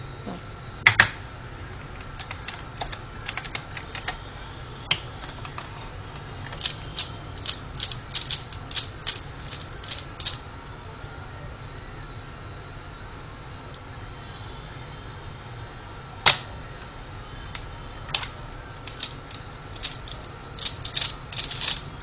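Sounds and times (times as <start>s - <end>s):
plastic puzzle clicking: 1.9s - 4.2s, 4.9s - 10.4s, 18.1s - 22.0s.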